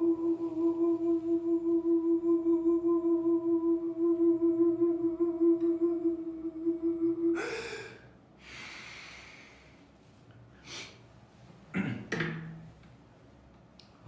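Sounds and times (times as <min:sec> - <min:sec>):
man humming a long note: 0:00.0 - 0:08.0
breathing: 0:07.4 - 0:11.0.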